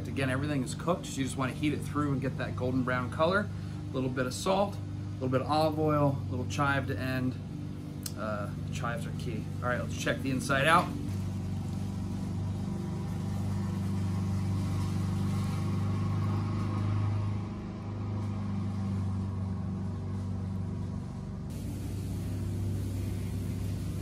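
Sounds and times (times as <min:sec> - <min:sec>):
low hum and rumble: 0:15.8 - 0:24.0.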